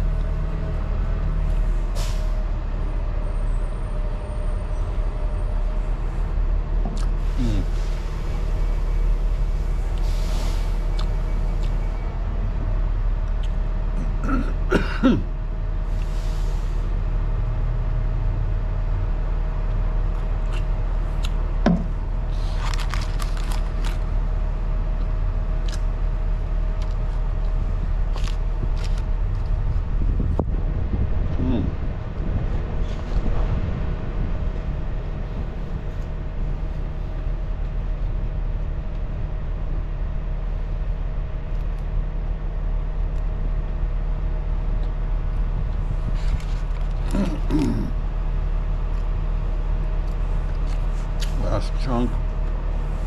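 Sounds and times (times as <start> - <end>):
low rumble: 16.6 - 51.1
paper wrapper crinkling: 22.4 - 24.0.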